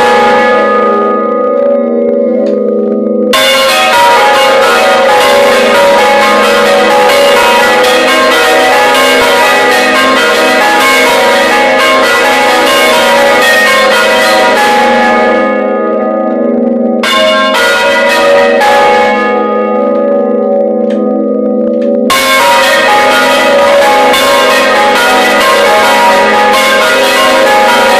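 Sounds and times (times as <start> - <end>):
bells humming: 0.0 - 27.9
church bells ringing: 0.0 - 27.9.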